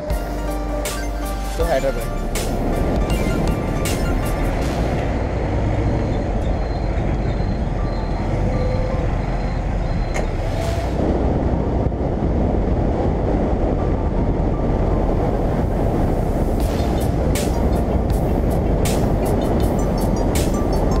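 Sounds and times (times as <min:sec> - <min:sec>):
wind rush: 0:01.7 - 0:21.0.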